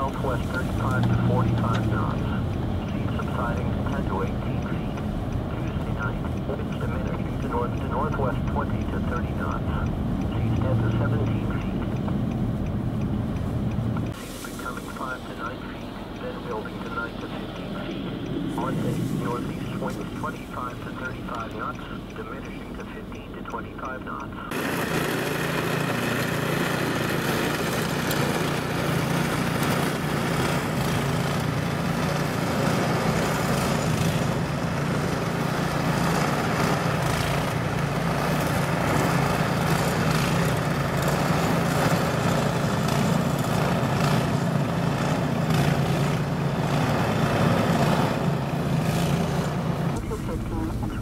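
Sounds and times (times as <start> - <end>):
small gasoline engine running: 24.5 - 50.0.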